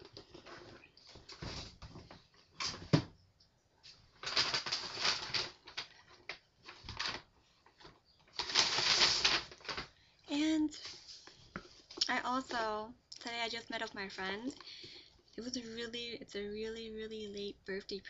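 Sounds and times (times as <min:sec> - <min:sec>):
paper bag rustling and crinkling: 0:03.9 - 0:10.0.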